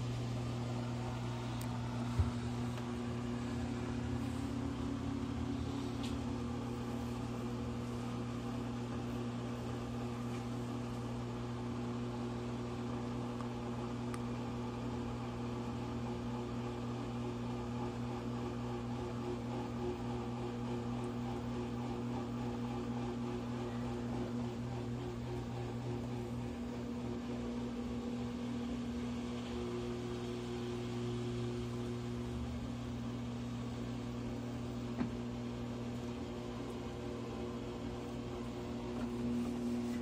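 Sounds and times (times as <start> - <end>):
washing machine motor hum: 0.0 - 40.0.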